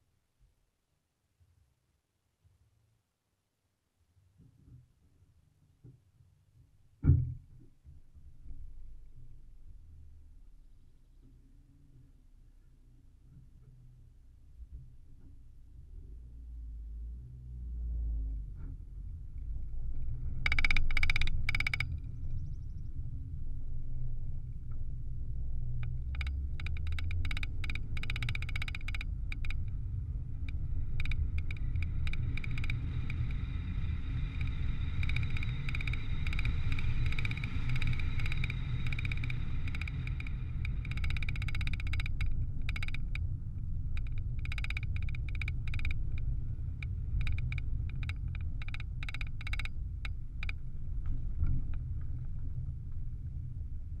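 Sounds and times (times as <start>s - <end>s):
wind and road noise rumble: 14.6s - 54.0s
rapid ticking: 20.4s - 22.1s, 25.8s - 50.8s.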